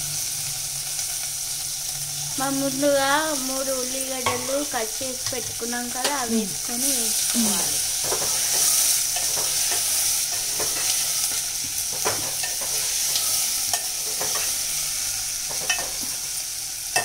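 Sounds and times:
onions sizzling in hot oil: 0:00.0 - 0:17.0
spoon clinking and scraping pot: 0:08.0 - 0:14.6, 0:15.5 - 0:16.2.

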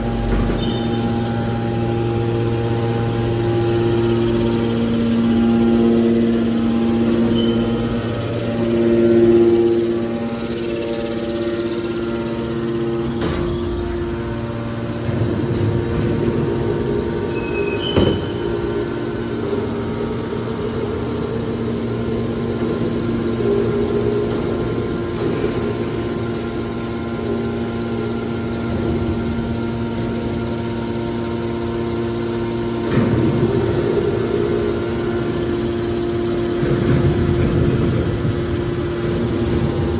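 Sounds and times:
hydraulic power unit humming: 0:00.0 - 0:39.9.

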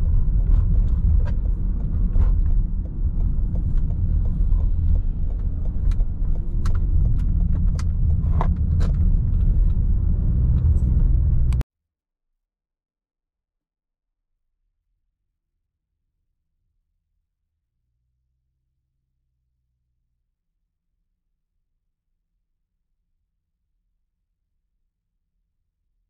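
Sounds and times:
car road and engine rumble: 0:00.0 - 0:11.6
sharp clicks and knocks: 0:00.0 - 0:11.6.

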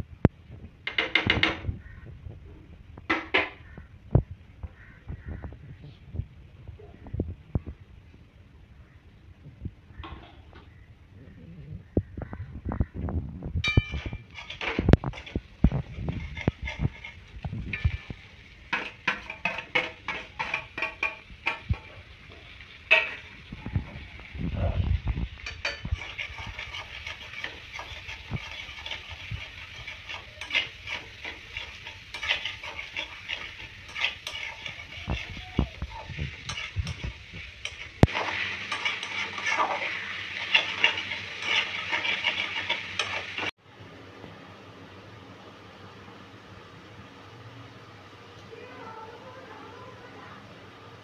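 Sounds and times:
metal spatula scraping a pan: 0:13.6 - 0:24.2, 0:25.3 - 0:43.6
onions sizzling in oil: 0:13.6 - 0:51.0.

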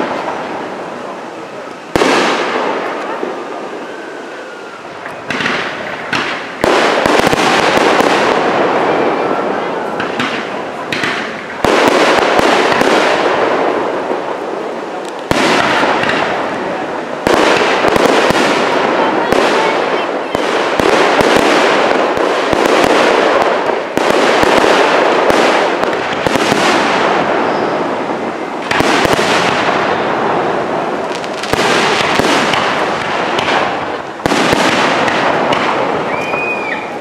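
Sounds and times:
firework crackle: 0:00.0 - 0:37.0.

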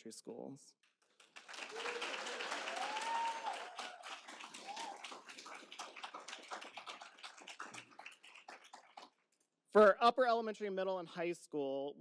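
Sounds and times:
audience applauding: 0:01.0 - 0:09.2.

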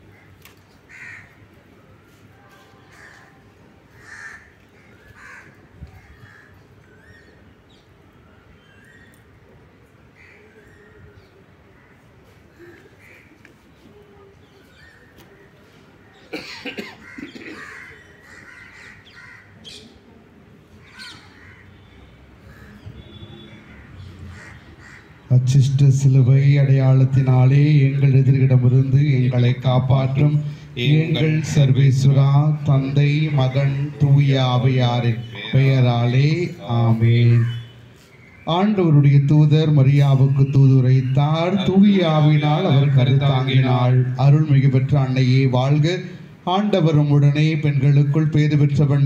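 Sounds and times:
crows cawing: 0:00.0 - 0:01.4, 0:02.8 - 0:06.6, 0:10.2 - 0:10.5, 0:11.7 - 0:13.5, 0:17.0 - 0:19.7, 0:20.8 - 0:25.3
low background noise: 0:00.0 - 0:49.0
bird calls: 0:20.8 - 0:25.3, 0:29.2 - 0:38.8.

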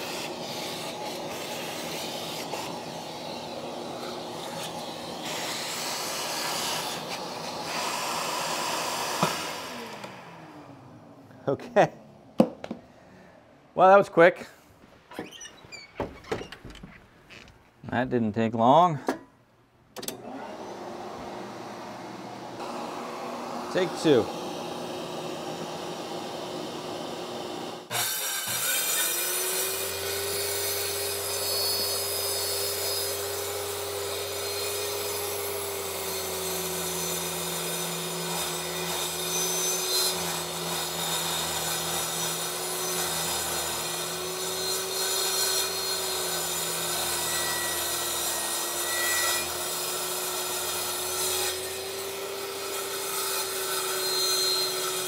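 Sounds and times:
circular saw cutting wood: 0:00.0 - 0:10.8, 0:20.1 - 0:55.0
shop vac running: 0:00.0 - 0:11.3, 0:20.1 - 0:27.9.

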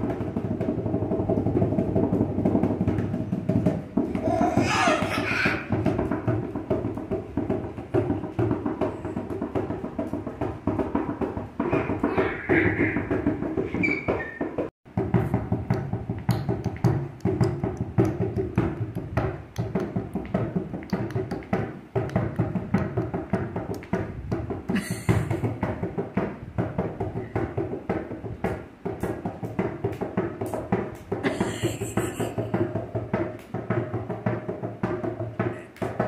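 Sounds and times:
hand drumming on bucket lid: 0:00.0 - 0:36.0.

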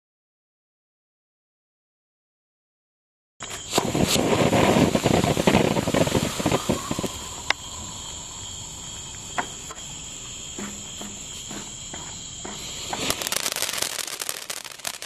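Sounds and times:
sharp firework pops: 0:03.4 - 0:07.6, 0:12.5 - 0:15.0
firework fuse hissing crackle: 0:03.4 - 0:15.0
insects chirring: 0:03.4 - 0:15.0.

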